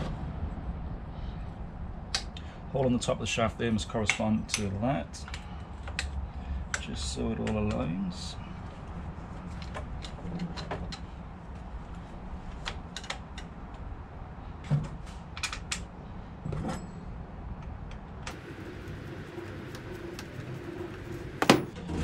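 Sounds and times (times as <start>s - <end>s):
faint low hum: 18.3s - 21.8s.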